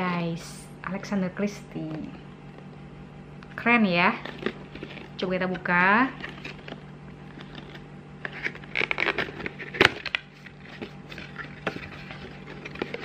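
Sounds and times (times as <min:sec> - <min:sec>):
cardboard box scraping and rustling: 0:07.4 - 0:13.0.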